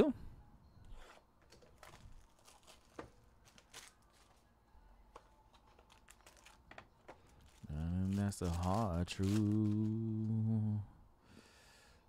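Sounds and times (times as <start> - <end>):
faint cardboard and foil crinkling: 1.0 - 10.5.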